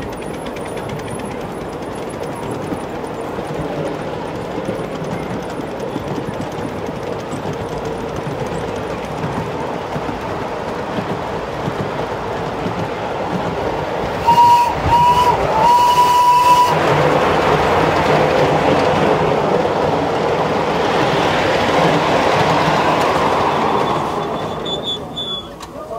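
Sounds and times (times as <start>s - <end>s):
train wheels rumbling on rail: 0.0s - 25.9s
locomotive whistle blasts: 14.2s - 16.8s, 23.6s - 25.6s.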